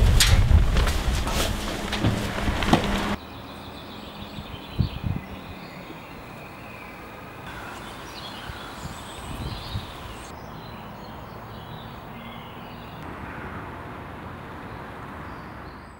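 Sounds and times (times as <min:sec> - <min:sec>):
birds chirping: 0:01.6 - 0:13.0.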